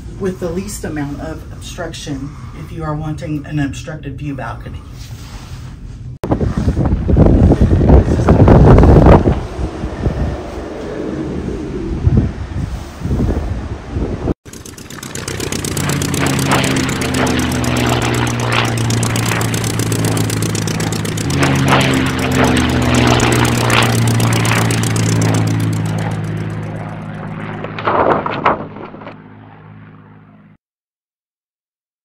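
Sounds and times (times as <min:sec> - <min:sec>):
propeller plane engine drone: 0:07.0 - 0:13.0, 0:13.8 - 0:30.6.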